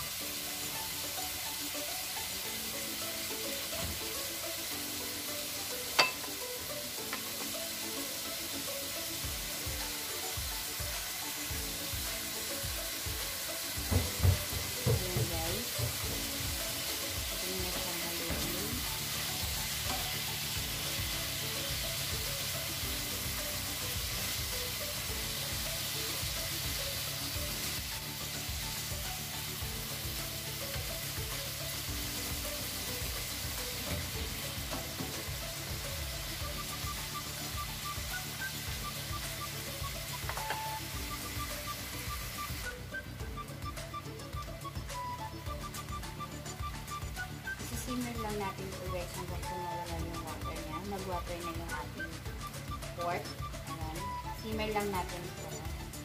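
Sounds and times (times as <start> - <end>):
meat sizzling in a pan: 0.0 - 56.0
spatula knocking against pan: 13.8 - 16.3.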